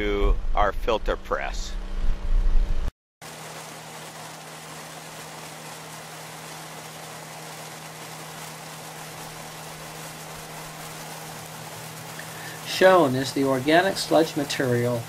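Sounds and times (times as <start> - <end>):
machinery humming and hissing: 3.2 - 15.0.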